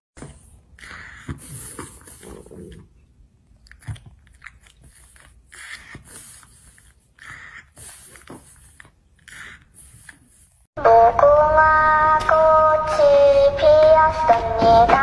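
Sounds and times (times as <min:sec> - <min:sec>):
dog breathing: 0:00.2 - 0:02.9, 0:04.7 - 0:10.7
dog mouth clicks and smacks: 0:03.5 - 0:06.1.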